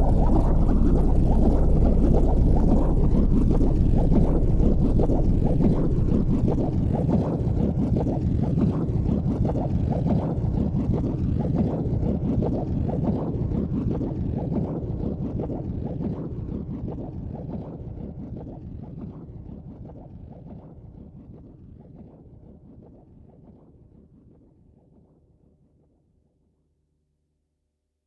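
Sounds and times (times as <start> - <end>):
wind buffeting microphone: 0.0 - 9.3.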